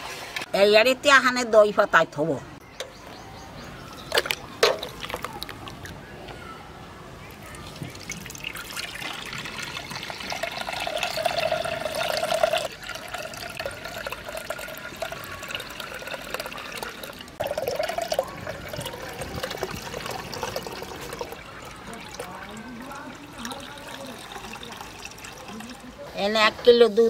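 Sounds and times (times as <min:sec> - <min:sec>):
milk pouring and splashing: 0:07.4 - 0:25.9.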